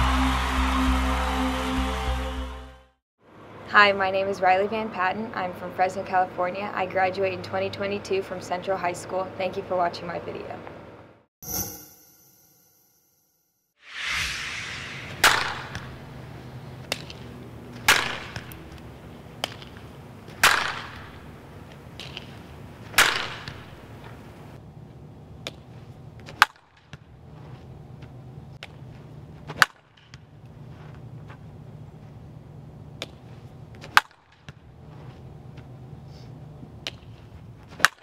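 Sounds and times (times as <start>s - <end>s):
bat cracking against ball: 15.2s - 16.1s, 16.8s - 18.8s, 19.4s - 24.2s, 26.2s - 27.1s, 29.5s - 30.3s, 33.0s - 34.7s, 36.8s - 38.0s
low background hum: 15.9s - 37.8s.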